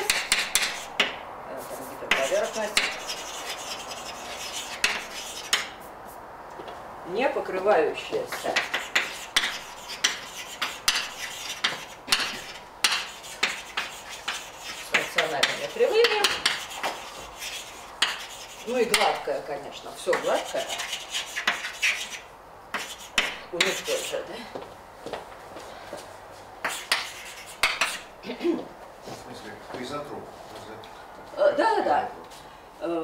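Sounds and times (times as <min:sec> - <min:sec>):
chalk writing on a blackboard: 0:00.0 - 0:06.2, 0:08.1 - 0:19.3, 0:20.1 - 0:24.3, 0:26.6 - 0:28.1.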